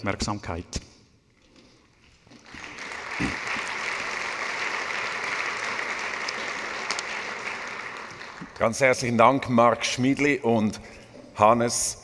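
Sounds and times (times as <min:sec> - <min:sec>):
audience applauding: 0:02.3 - 0:08.8.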